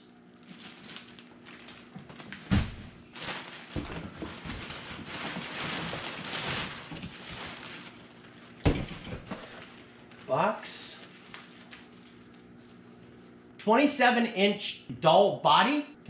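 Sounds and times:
plastic garbage bag rustling: 0:00.0 - 0:13.4
knocks and thumps: 0:08.6 - 0:09.5.

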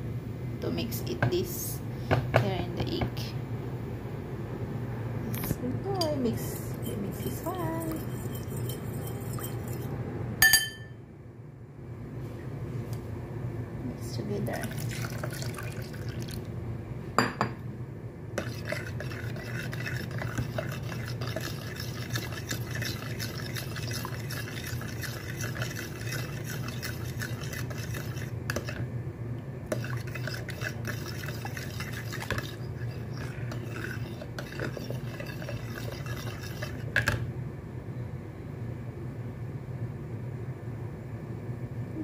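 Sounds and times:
steady low hum: 0:00.0 - 0:42.0
metal spoon stirring in bowl: 0:06.0 - 0:10.9, 0:14.6 - 0:16.3, 0:18.4 - 0:28.8, 0:29.7 - 0:37.2.

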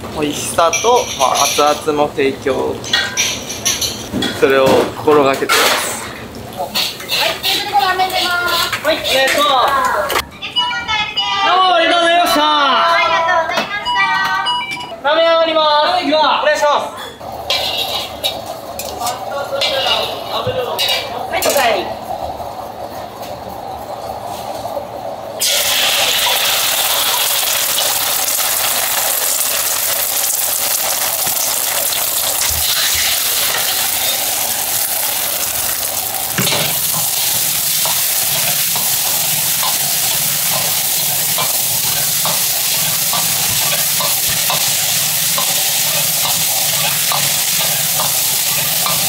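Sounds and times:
frying sizzle in a wok: 0:05.8 - 0:10.2, 0:17.2 - 0:21.9, 0:25.4 - 0:49.0
spatula scraping and tapping pan: 0:17.5 - 0:18.9.

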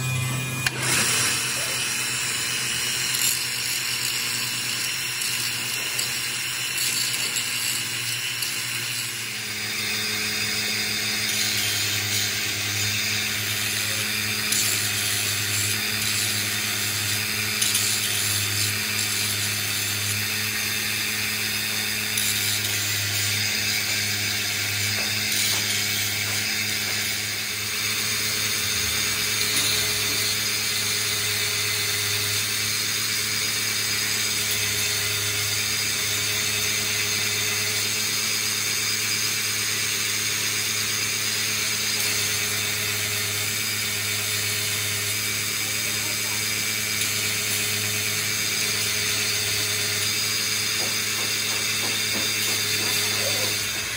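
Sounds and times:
motor hum: 0:00.0 - 0:35.0
grinding wheel grinding steel: 0:00.0 - 0:53.9.

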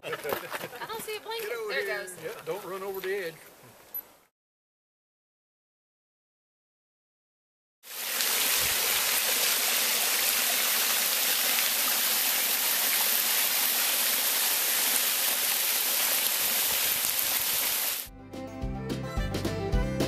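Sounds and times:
creek trickling over rocks: 0:07.9 - 0:18.1.

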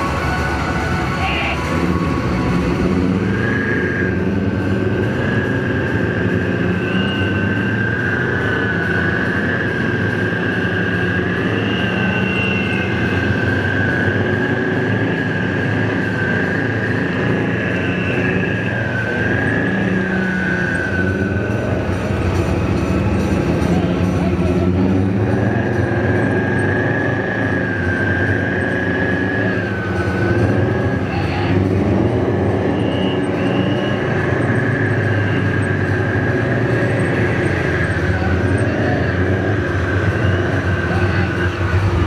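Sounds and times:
high whine of running gear: 0:00.0 - 0:42.0
tank diesel engines running: 0:00.0 - 0:42.0.

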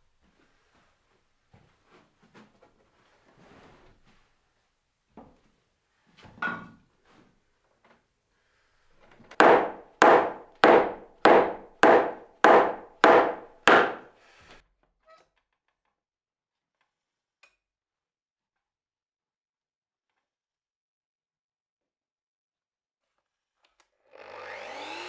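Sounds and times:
hammer blows on timber beam: 0:09.4 - 0:14.2.

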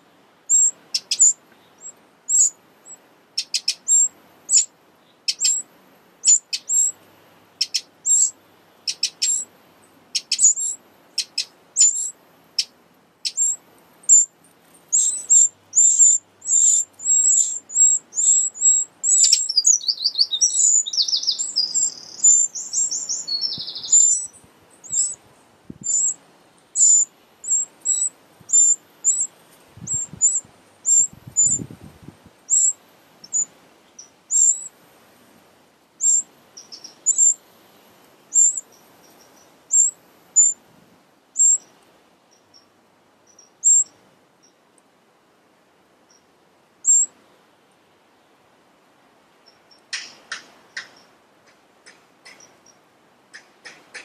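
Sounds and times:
nestlings begging calls: 0:00.5 - 0:04.7, 0:05.3 - 0:05.6, 0:06.2 - 0:07.0, 0:07.6 - 0:09.5, 0:10.1 - 0:14.3, 0:14.9 - 0:25.2, 0:25.8 - 0:26.2, 0:26.8 - 0:31.7, 0:32.5 - 0:34.7, 0:36.0 - 0:37.4, 0:38.3 - 0:40.6, 0:41.4 - 0:41.7, 0:43.3 - 0:43.9, 0:46.8 - 0:47.1.

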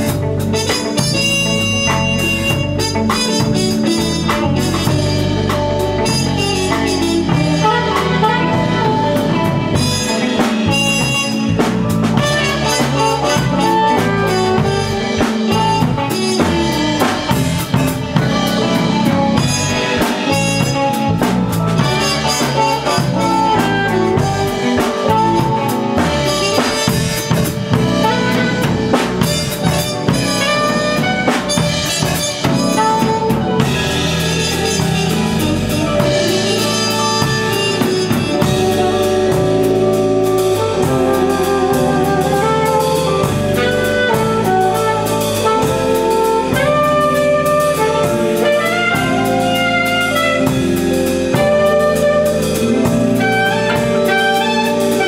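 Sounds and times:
drum kit beat: 0:00.0 - 0:55.0
saxophone: 0:00.0 - 0:55.0.

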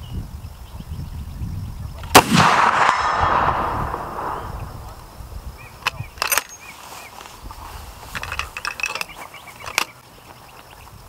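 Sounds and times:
rifle bolt metallic clacks: 0:05.8 - 0:06.6, 0:08.1 - 0:10.0.

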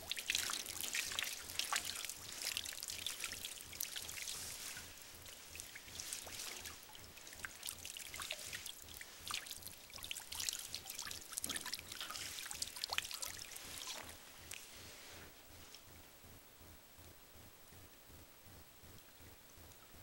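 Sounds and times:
water dripping: 0:00.0 - 0:14.7
water trickling: 0:00.0 - 0:14.7.

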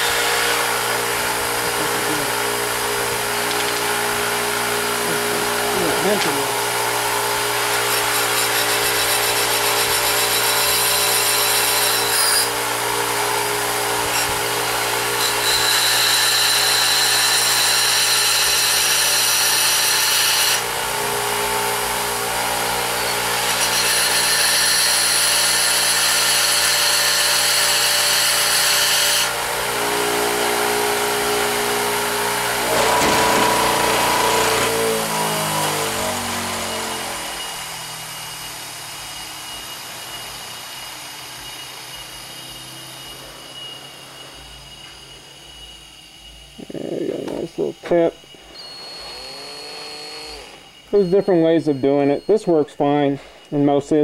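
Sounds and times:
bench grinder running: 0:00.0 - 0:53.2
high grinding whine: 0:00.0 - 0:54.0.

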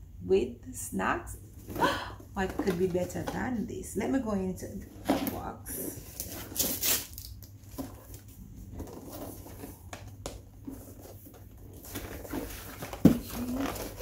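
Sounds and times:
cardboard box being opened: 0:05.0 - 0:14.0.

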